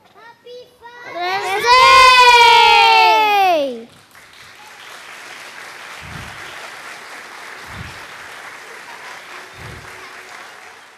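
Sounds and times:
audience applauding: 0:01.4 - 0:10.9
dull low thuds: 0:06.0 - 0:06.4.

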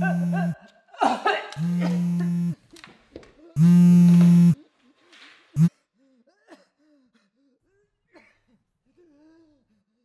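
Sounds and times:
phone vibrating on stone: 0:00.0 - 0:00.6, 0:01.6 - 0:02.6, 0:03.6 - 0:04.6.

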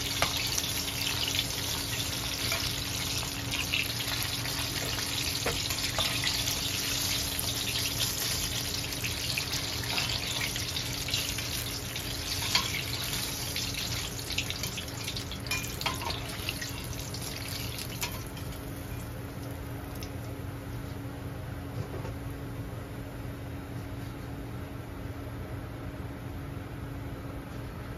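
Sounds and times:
chicken deep-frying in oil: 0:00.0 - 0:20.8.

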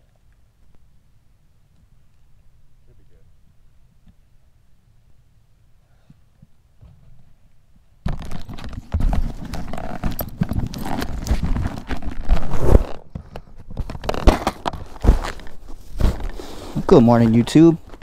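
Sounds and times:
microphone crackling and knocking: 0:08.0 - 0:16.4.

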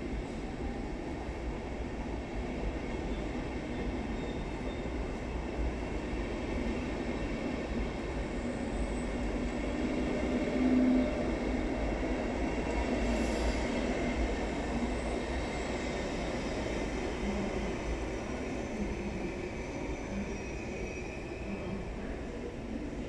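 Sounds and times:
brief tone: 0:04.1 - 0:04.9.

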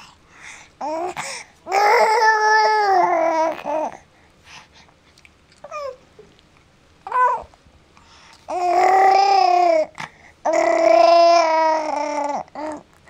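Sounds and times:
baby gurgling: 0:00.8 - 0:04.0, 0:08.5 - 0:12.8.

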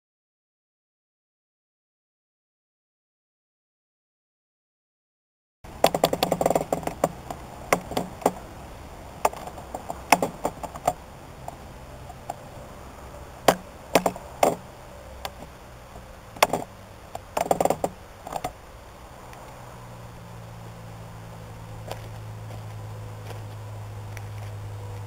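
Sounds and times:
low background hiss: 0:05.7 - 0:25.0.

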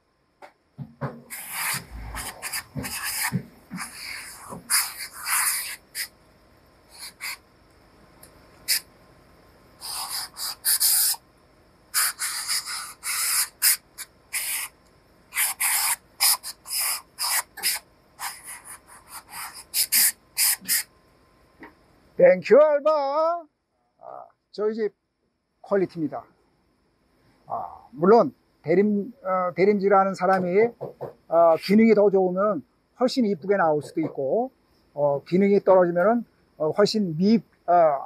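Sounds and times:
steam gun hissing: 0:01.3 - 0:06.1.

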